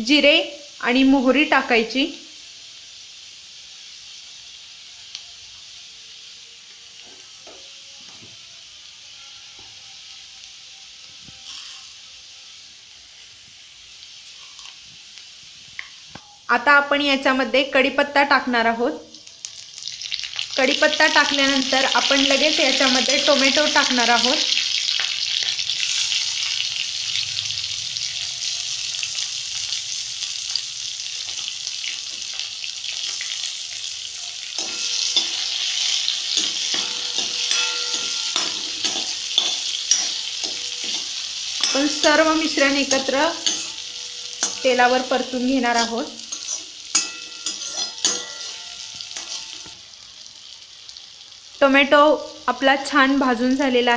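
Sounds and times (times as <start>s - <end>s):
hot oil sizzling: 0.0s - 53.9s
steel ladle scraping in pan: 11.3s - 12.2s, 24.5s - 27.4s, 31.2s - 49.8s
spoon tapping: 34.6s - 44.8s, 45.8s - 49.8s.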